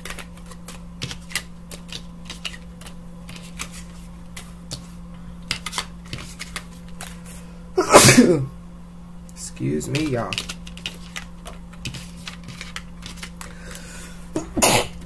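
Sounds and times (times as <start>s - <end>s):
steady low hum: 0.0s - 15.0s
person sneezing: 7.8s - 8.5s, 14.6s - 15.0s.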